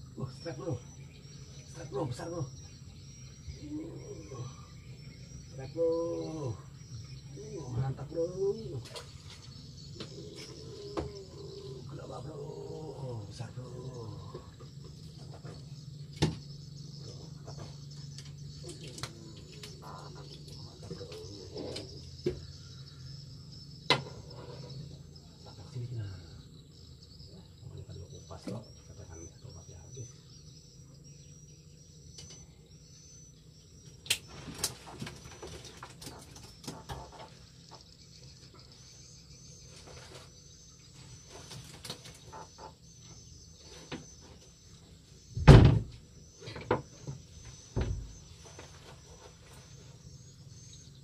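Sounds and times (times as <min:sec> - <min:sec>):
insects chirring: 0:00.0 - 0:51.0
heavy thump: 0:45.4 - 0:46.0.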